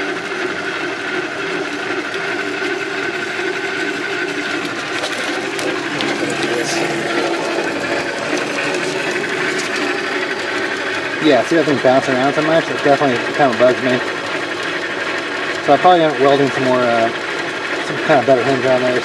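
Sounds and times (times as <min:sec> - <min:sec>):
bandsaw running: 0:00.0 - 0:19.0.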